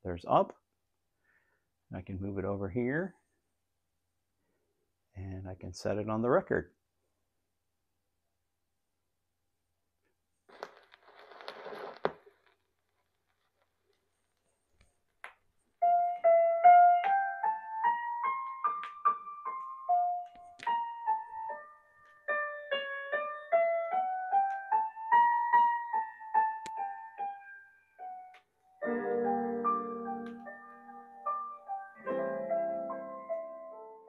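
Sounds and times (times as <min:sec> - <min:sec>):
keyboard melody from record: 0:15.8 - 0:34.0.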